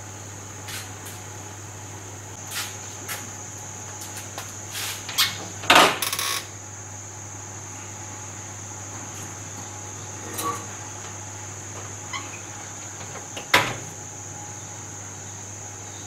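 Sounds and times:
oven door shutting: 5.1 - 6.5, 10.1 - 14.0.

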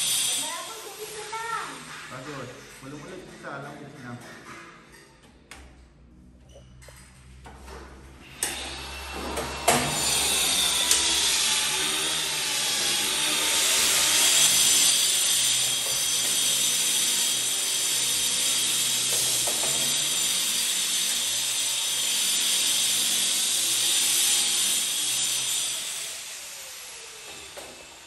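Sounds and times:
power tool motor whine: 8.2 - 28.0.

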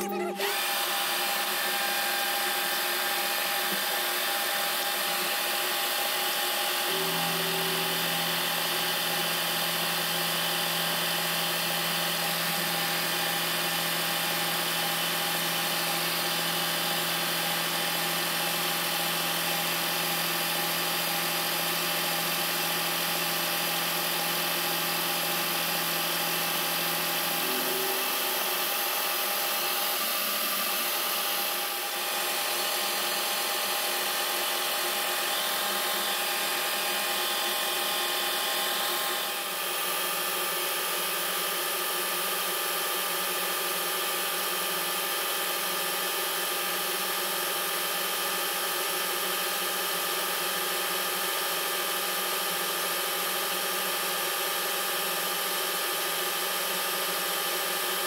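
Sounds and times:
milling machine whine: 0.0 - 41.4
low hum: 27.0 - 28.9.

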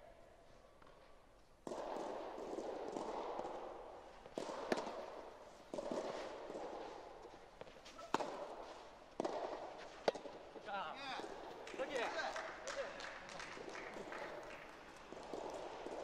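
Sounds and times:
tennis ball hitting rackets: 1.6 - 12.1, 13.6 - 16.0
shoes scuffing on court: 4.7 - 10.6.

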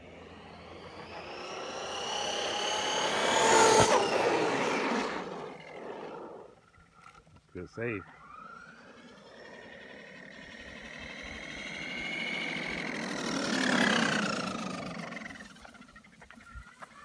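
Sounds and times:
electric rc car motor whining: 0.0 - 17.0.

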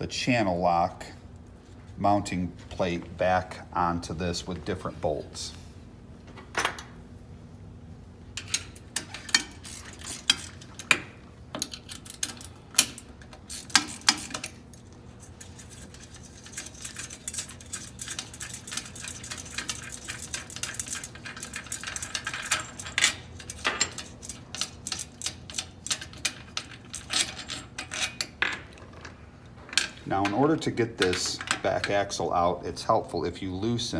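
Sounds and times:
wrench clicking on metal: 8.4 - 11.0, 15.4 - 28.3.

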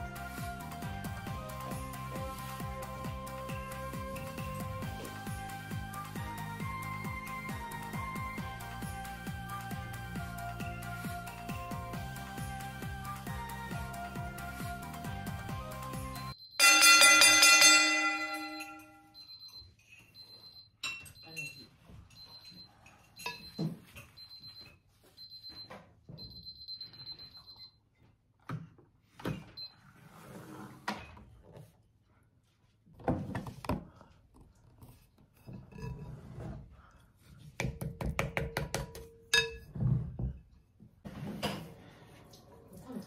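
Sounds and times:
digital kitchen timer beeping: 16.2 - 27.8.

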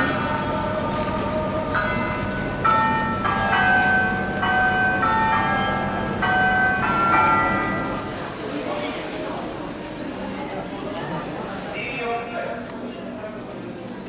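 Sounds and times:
slow bell-like melody: 0.0 - 8.3.

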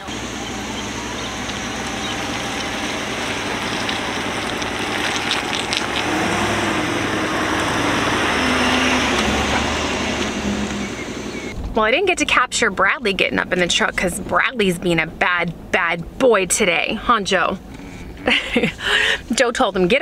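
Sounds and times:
pickup truck engine running: 0.0 - 20.0
tyres hissing on wet pavement: 0.1 - 11.5.

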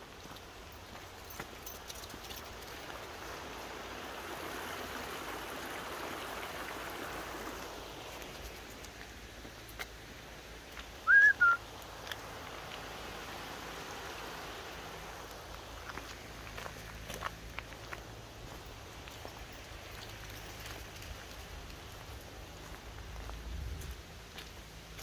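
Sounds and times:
river rushing over rocks: 0.0 - 25.0
two-note whistle: 11.0 - 11.6.

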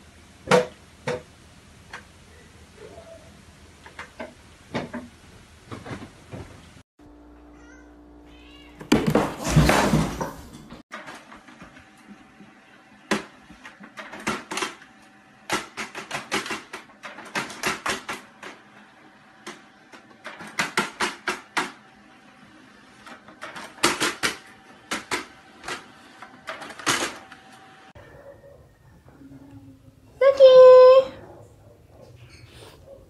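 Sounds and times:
printer feeding paper: 11.0 - 28.0
cat paws tapping printer: 15.5 - 18.6.

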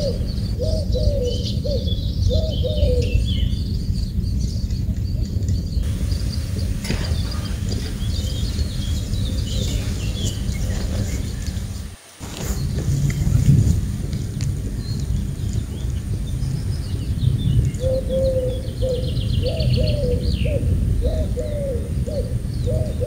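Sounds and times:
pigeon cooing: 0.0 - 3.4, 17.7 - 23.0
small birds chirping: 0.0 - 23.0
steady low rumble: 0.0 - 23.0.

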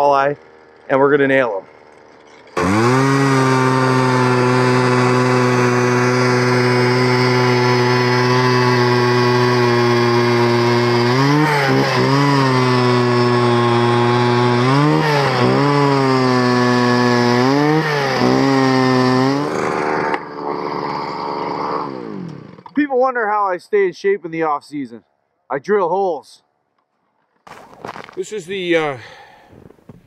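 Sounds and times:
ice auger engine drilling: 0.0 - 22.8.

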